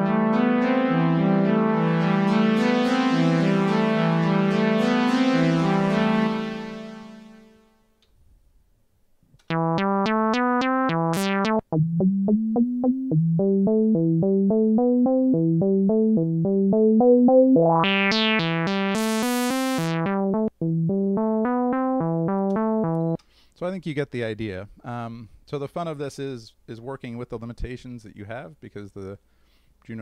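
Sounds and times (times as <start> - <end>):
synthesizer playing short notes: 0.0 - 7.6, 9.5 - 23.2.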